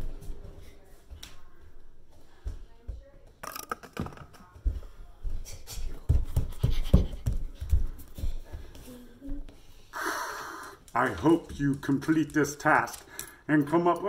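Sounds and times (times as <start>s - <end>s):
bare footsteps on wooden floor: 4.6s - 9.6s.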